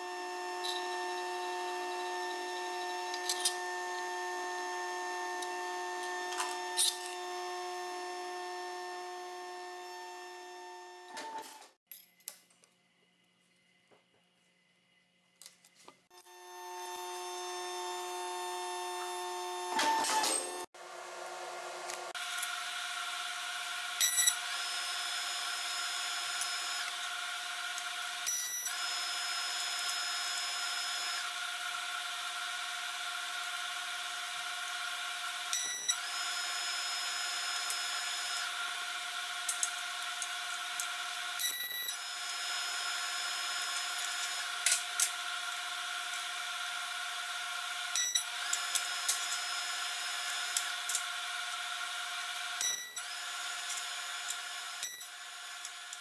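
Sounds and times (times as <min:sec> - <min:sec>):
steady shop hum: 0:00.0 - 0:56.0
metal shear cutting: 0:00.1 - 0:11.6.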